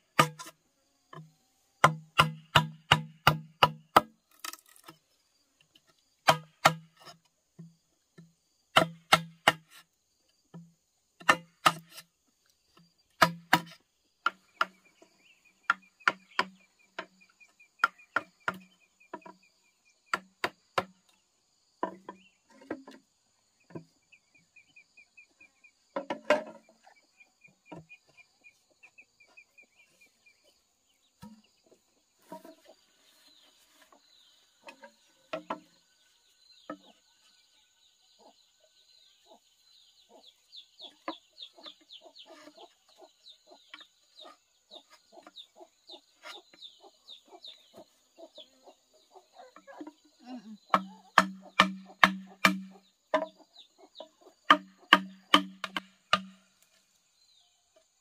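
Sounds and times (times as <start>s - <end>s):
blade chopping strikes: 13.2s - 13.7s, 51.2s - 52.7s.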